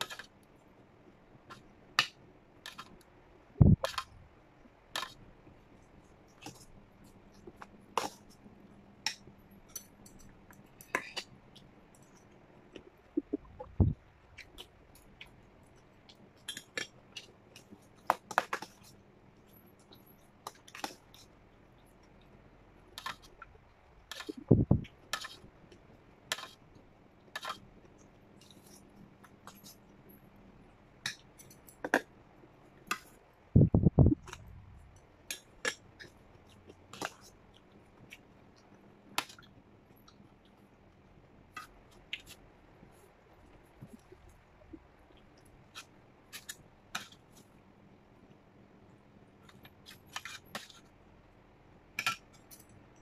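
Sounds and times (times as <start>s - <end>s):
low thumps: 33.6s - 34.7s.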